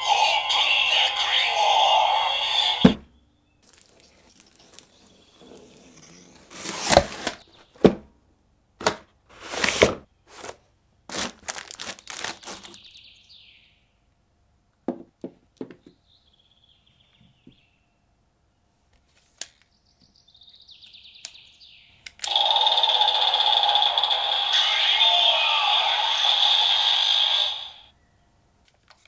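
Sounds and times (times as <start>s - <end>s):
cardboard packaging tearing: 3.6s - 7.4s, 9.5s - 12.8s.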